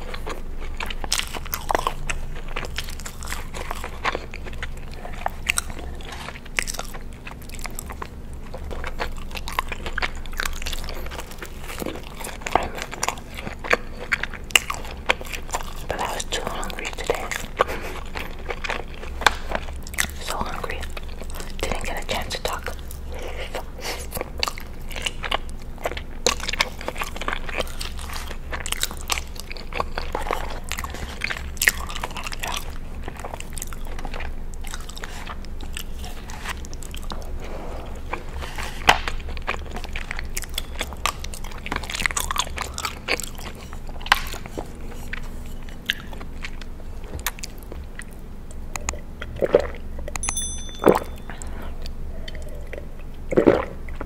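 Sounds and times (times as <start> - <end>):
chewing and wet mouth sounds: 0.0 - 54.0.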